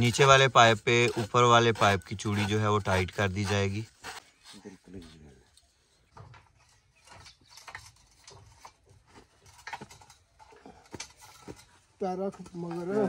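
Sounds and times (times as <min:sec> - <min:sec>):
drill pipe clicks and clinks: 0:06.2 - 0:11.8.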